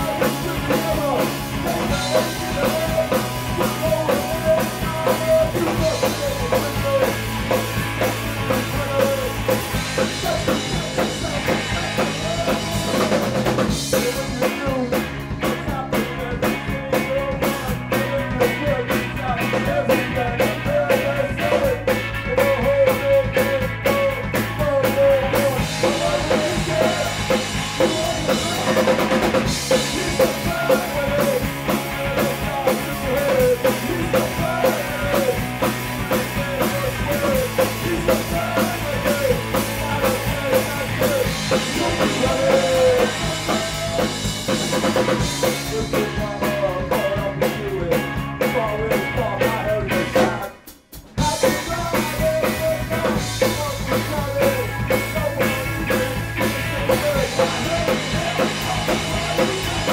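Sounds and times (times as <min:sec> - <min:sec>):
bass guitar: 0:00.0 - 0:59.9
drum kit: 0:00.0 - 0:59.9
electric guitar: 0:00.0 - 0:59.9.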